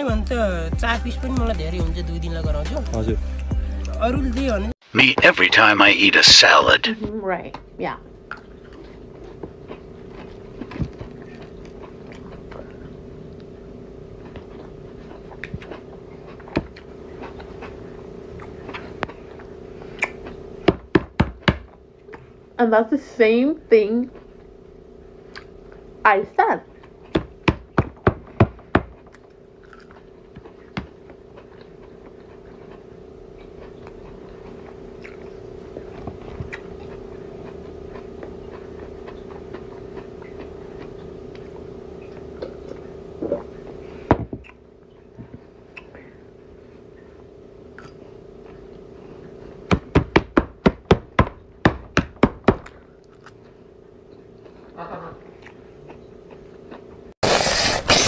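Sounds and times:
chewing crunchy salad: 8.3s - 20.6s, 25.2s - 25.9s, 29.0s - 46.0s, 47.6s - 49.6s, 52.6s - 58.0s.

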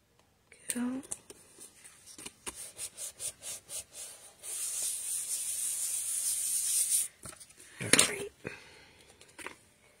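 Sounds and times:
hands rubbing cardstock: 1.6s - 7.2s.

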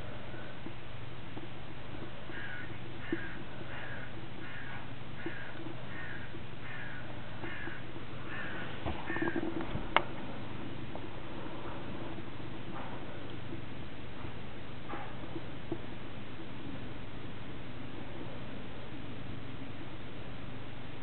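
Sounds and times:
bird calling: 2.3s - 9.6s.

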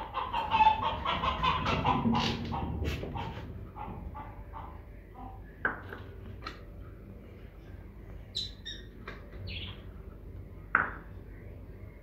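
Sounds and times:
clay bowls knocking on concrete: 5.6s - 6.1s, 10.7s - 11.1s
parrots chirping and squawking: 8.3s - 8.9s.

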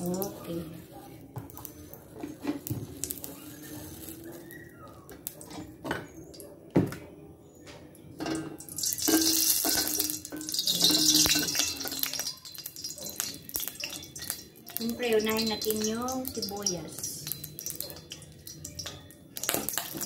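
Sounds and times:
oil sizzling in a wok: 0.0s - 0.8s, 2.4s - 4.5s, 8.6s - 20.0s
kitchen utensils clicking and knocking: 8.2s - 20.0s.

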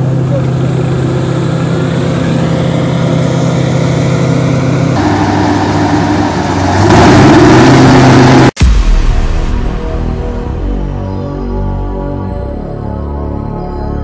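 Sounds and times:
forage harvester engine: 0.0s - 8.6s
diesel farm machinery running: 0.0s - 13.6s.

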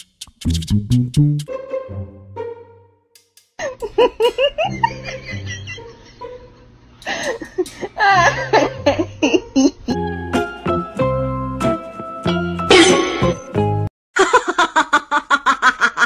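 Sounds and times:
background music: 0.0s - 3.0s, 9.8s - 13.9s.

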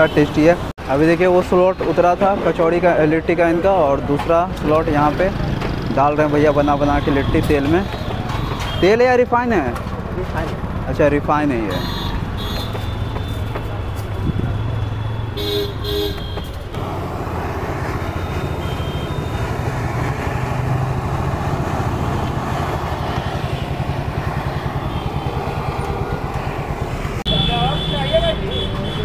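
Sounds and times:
low street traffic rumble: 0.0s - 29.0s
vehicle horn toots: 11.7s - 13.4s, 15.4s - 16.6s, 18.2s - 19.4s, 27.3s - 29.0s.

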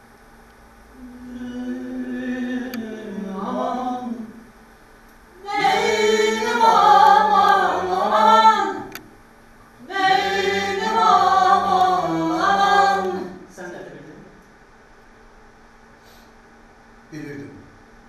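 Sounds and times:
choir singing: 1.0s - 4.3s, 5.4s - 9.0s, 9.8s - 13.5s.

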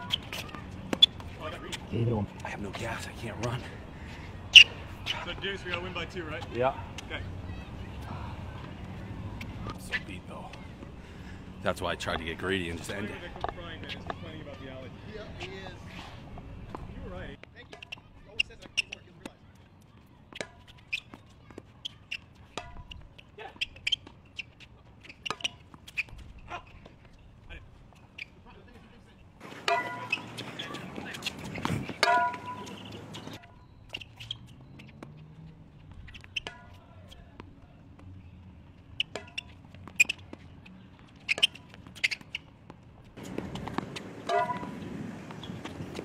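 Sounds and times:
tennis ball hits and bounces: 0.0s - 1.9s, 20.3s - 27.0s, 29.4s - 38.1s, 39.0s - 40.6s, 41.2s - 46.0s
shoes squeaking on court: 0.0s - 46.0s.

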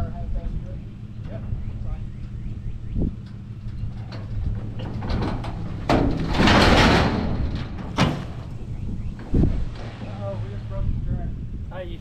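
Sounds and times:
engine humming low: 0.0s - 12.0s
truck wheels clattering on steel deck: 3.2s - 10.0s.

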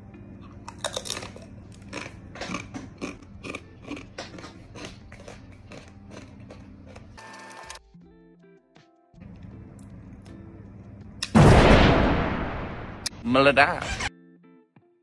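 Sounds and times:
crunching crisp chip: 0.6s - 7.1s.

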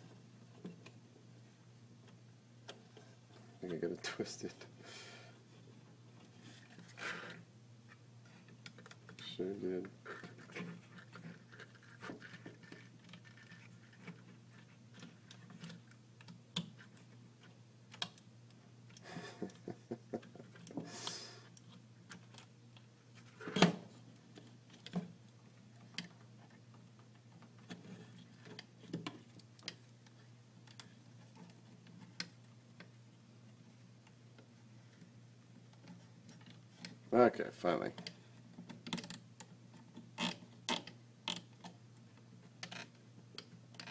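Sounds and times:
tools and parts clicking on bench: 38.0s - 39.5s, 42.6s - 43.9s.

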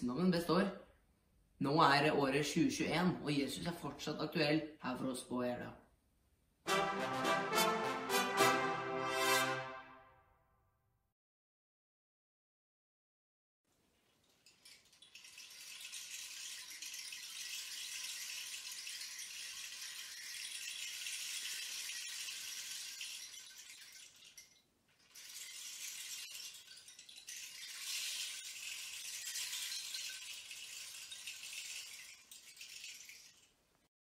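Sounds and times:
soft rattling hiss: 13.7s - 33.9s.

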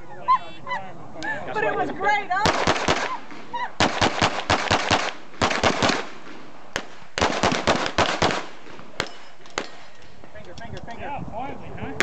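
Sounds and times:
pistol gunshots: 2.4s - 9.9s.

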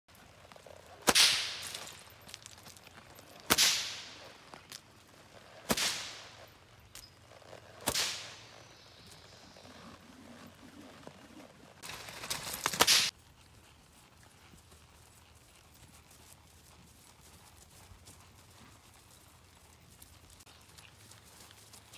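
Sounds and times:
whip cracking: 1.0s - 2.0s, 3.5s - 4.2s, 5.7s - 6.4s, 7.8s - 8.5s, 12.6s - 13.1s.

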